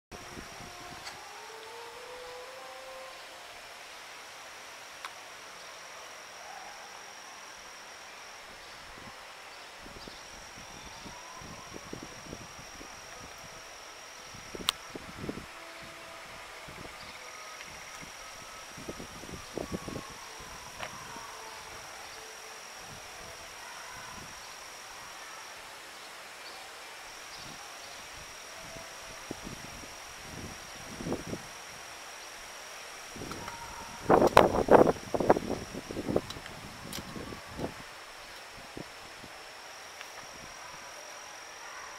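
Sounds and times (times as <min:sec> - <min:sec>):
faint outdoor hiss: 0:00.1 - 0:41.9
insects trilling: 0:00.2 - 0:41.9
insects shrilling: 0:27.1 - 0:41.9.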